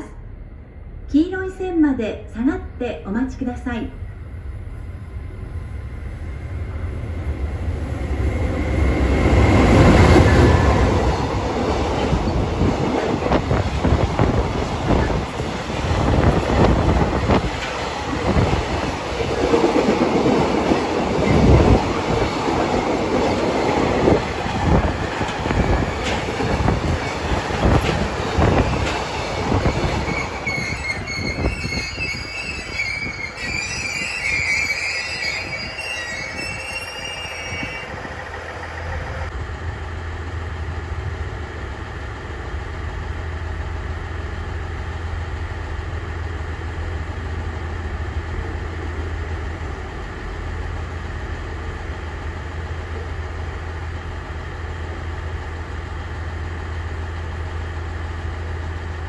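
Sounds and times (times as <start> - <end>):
train wheels clacking on rails: 8.7 - 31.6
high wheel squeal: 28.4 - 39.0.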